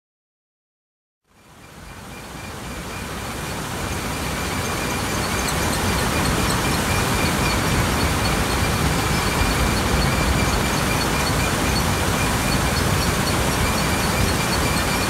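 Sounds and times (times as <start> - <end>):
vibrating screen and conveyors running: 3.6 - 15.0.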